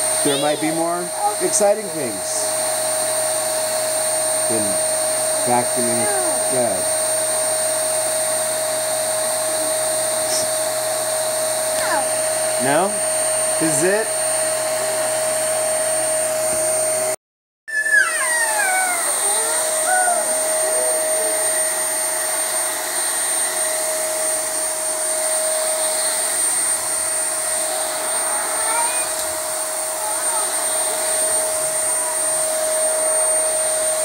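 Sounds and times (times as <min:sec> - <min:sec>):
vacuum cleaner whining: 0:00.0 - 0:34.0
high falling squeaks: 0:17.7 - 0:21.2.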